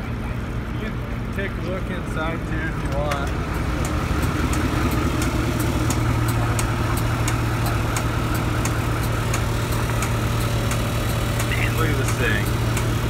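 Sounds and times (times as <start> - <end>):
diesel engine idling: 0.0 - 13.0
light ticking: 2.9 - 13.0.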